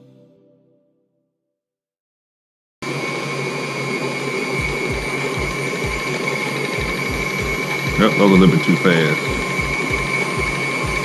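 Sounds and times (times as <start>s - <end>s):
electric mixer whining: 2.8s - 11.0s.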